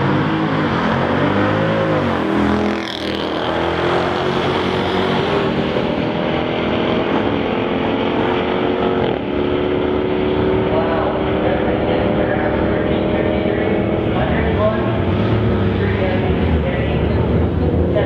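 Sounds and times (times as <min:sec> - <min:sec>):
drag car engine accelerating: 0:00.0 - 0:18.0.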